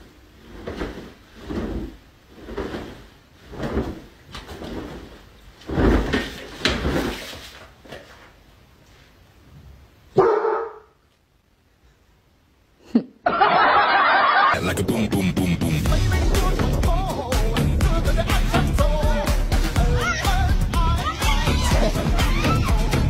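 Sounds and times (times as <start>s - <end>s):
dog barking: 10.2s - 11.0s.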